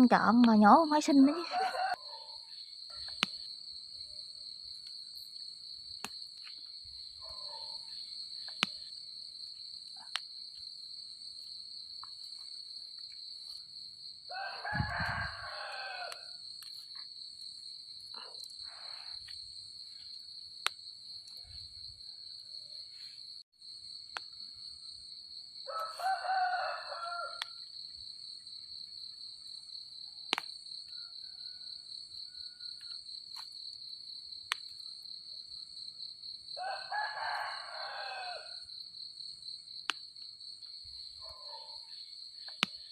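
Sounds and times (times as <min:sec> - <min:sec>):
rooster crowing: 0:01.3 - 0:02.4, 0:14.3 - 0:16.4, 0:25.6 - 0:27.6, 0:30.9 - 0:32.8, 0:36.6 - 0:38.6.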